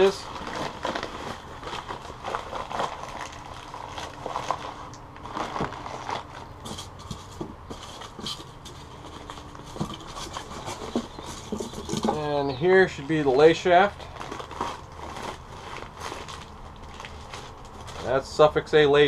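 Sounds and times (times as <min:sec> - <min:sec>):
newspaper crinkling: 0:00.0 - 0:12.3, 0:13.0 - 0:18.6
scrapes and knocks in cardboard box: 0:04.3 - 0:12.3.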